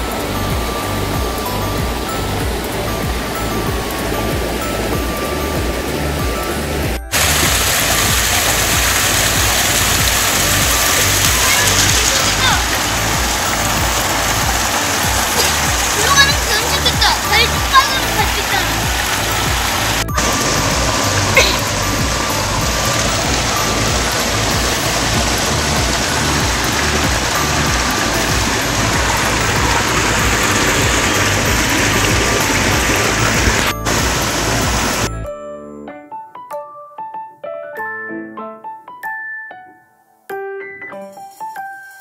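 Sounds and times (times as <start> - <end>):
water rushing over rocks: 0.0 - 35.1
background music: 0.0 - 42.0.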